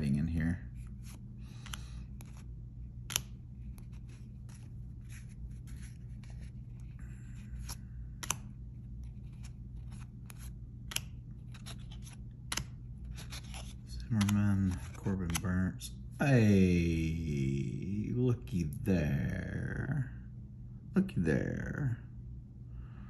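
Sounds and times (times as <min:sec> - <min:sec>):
cards flipped sliding and snapping: 0:00.8 - 0:15.6.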